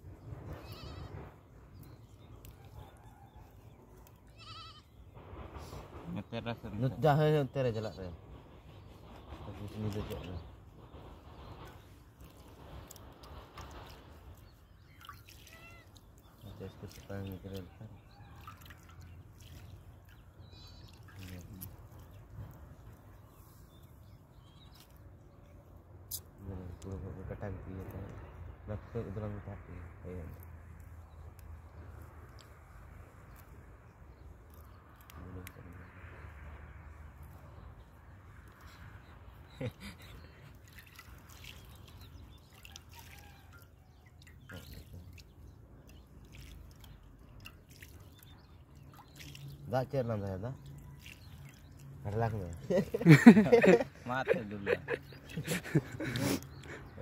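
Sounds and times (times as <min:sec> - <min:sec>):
water dripping: 0:11.7 - 0:23.0, 0:30.3 - 0:35.6, 0:38.4 - 0:53.9
hands splashing water in a pot: 0:13.6 - 0:22.2, 0:40.5 - 0:50.0, 0:50.6 - 0:53.4.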